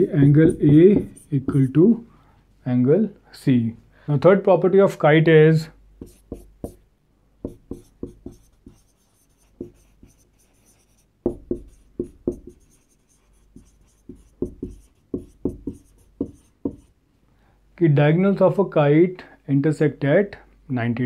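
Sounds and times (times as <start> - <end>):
marker writing on whiteboard: 0.0 - 1.8, 6.0 - 6.8, 7.4 - 17.0.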